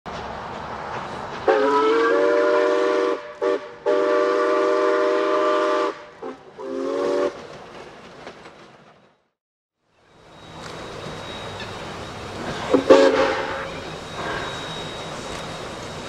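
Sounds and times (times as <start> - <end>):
steam hissing: 0.1 - 7.7, 9.9 - 16.0
steam locomotive whistle: 1.4 - 7.4, 10.2 - 16.0.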